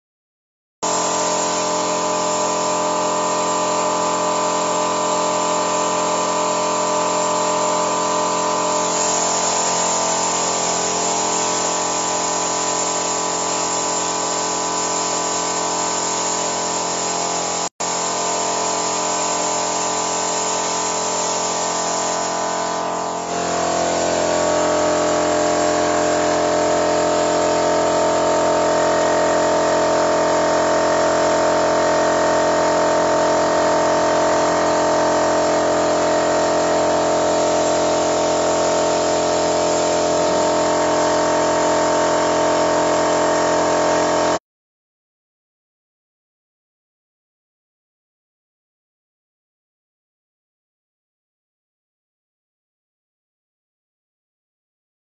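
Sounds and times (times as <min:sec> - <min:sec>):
machine running with whine: 0:18.6 - 0:44.2.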